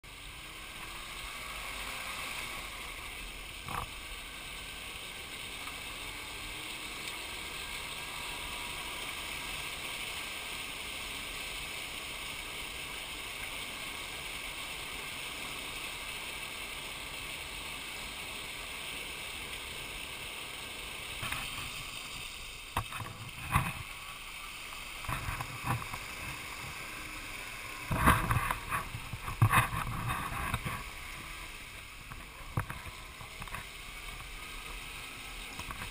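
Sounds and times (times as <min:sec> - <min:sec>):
tracks splashing through water and mud: 0:17.4 - 0:35.9.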